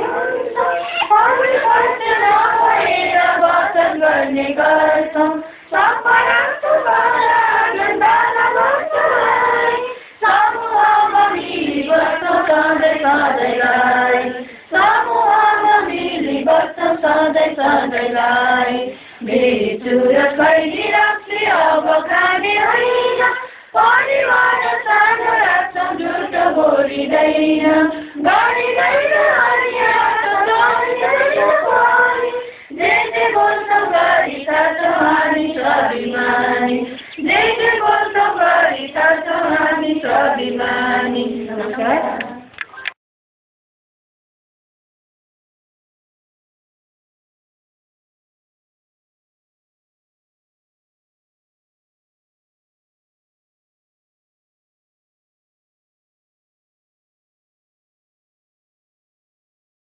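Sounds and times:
group of voices singing: 0.0 - 42.6.

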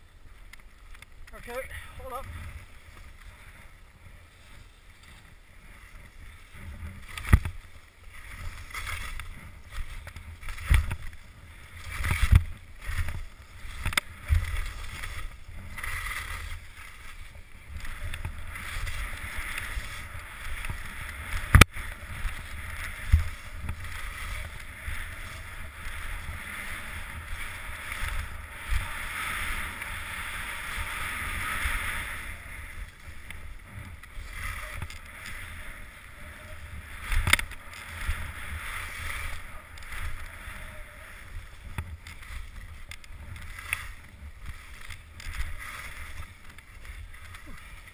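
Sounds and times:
skis scraping over snow: 0.0 - 47.9
wind rumbling on microphone: 0.0 - 47.9.

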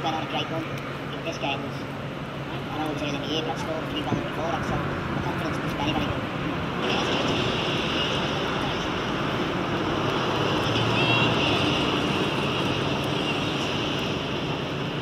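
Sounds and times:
high-pitched hum: 0.0 - 15.0
road traffic rumble and hiss: 0.0 - 15.0.

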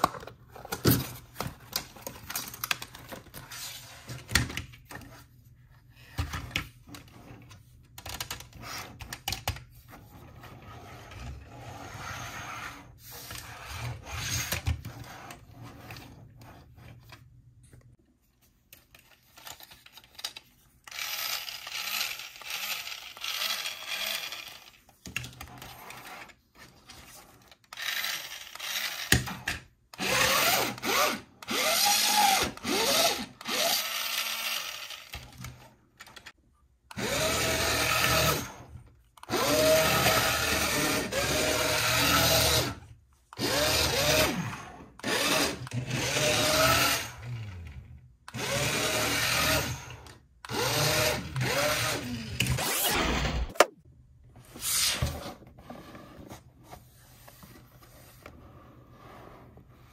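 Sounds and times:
toy electric motor whirring: 20.8 - 24.9, 27.3 - 29.3, 29.9 - 35.4, 36.9 - 47.4, 48.3 - 53.7.

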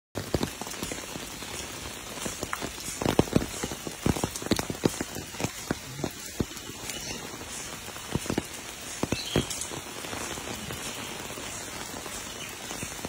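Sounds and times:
rain patter: 0.1 - 13.0
sharp raindrop splashes: 0.2 - 13.0.

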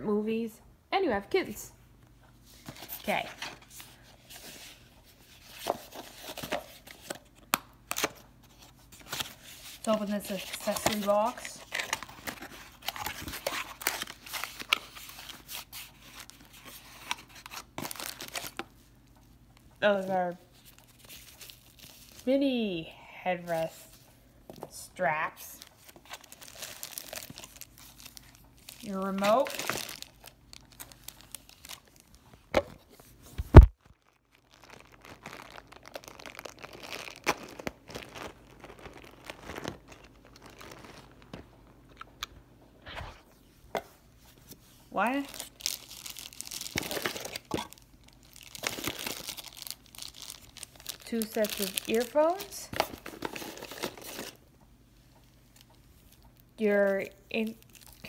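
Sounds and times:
plastic bag crinkling and tearing: 5.3 - 18.8, 20.5 - 22.3, 25.5 - 32.3, 33.6 - 42.2, 45.0 - 54.4, 55.5 - 58.0.

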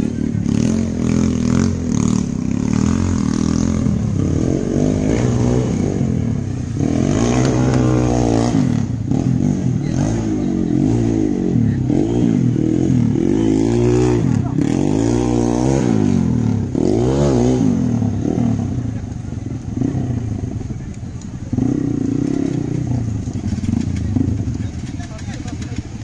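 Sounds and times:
motorcycle engine revving: 0.0 - 26.0.

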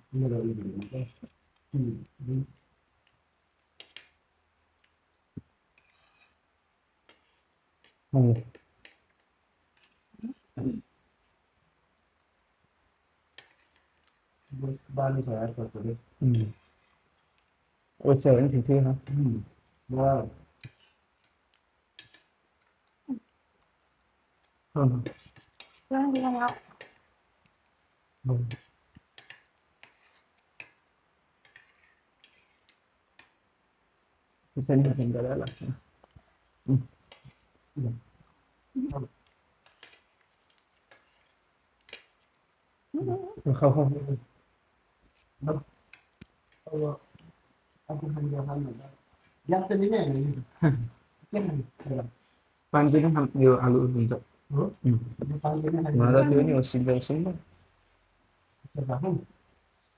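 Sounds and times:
person speaking: 0.1 - 2.6, 8.2 - 8.6, 10.2 - 10.8, 14.5 - 16.6, 18.0 - 20.4, 24.8 - 25.2, 25.9 - 26.8, 28.2 - 28.6, 34.6 - 35.8, 36.7 - 36.9, 37.8 - 38.0, 38.8 - 39.1, 43.0 - 44.2, 45.4 - 45.7, 46.7 - 47.2, 47.9 - 52.1, 52.8 - 57.4, 58.7 - 59.3
spoons clicking on plates: 28.5 - 30.8.

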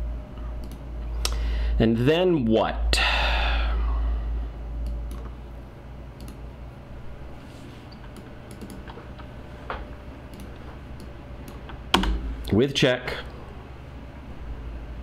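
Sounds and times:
low rumble: 0.0 - 7.4
mouse and keyboard clicks: 7.9 - 9.3, 10.3 - 12.2.

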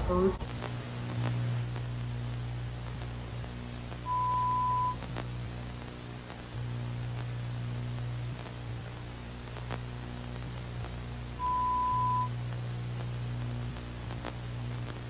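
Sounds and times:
static hiss: 0.0 - 15.0
high beep: 4.1 - 5.0, 11.4 - 12.3.

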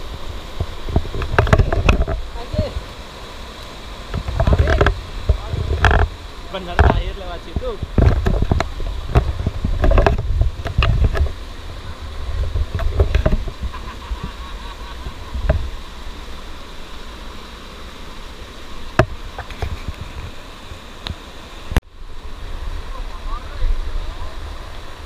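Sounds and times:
stream rushing over rocks: 0.0 - 25.0.

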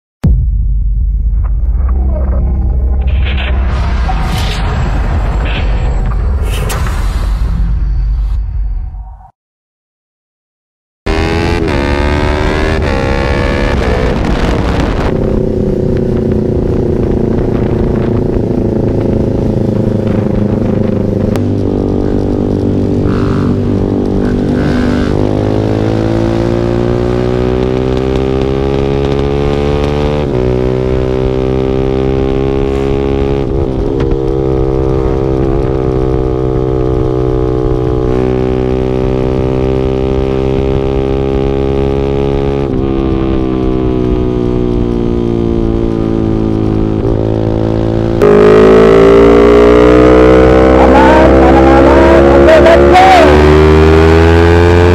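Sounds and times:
motorcycle engine accelerating: 11.1 - 54.9.

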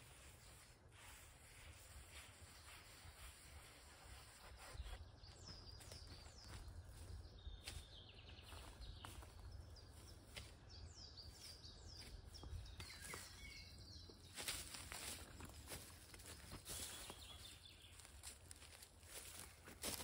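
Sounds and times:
bird chirps and trill: 10.9 - 15.2.

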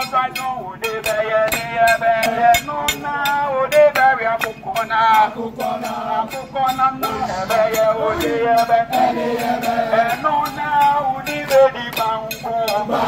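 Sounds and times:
man singing: 0.0 - 13.0
dance music: 7.0 - 8.6.

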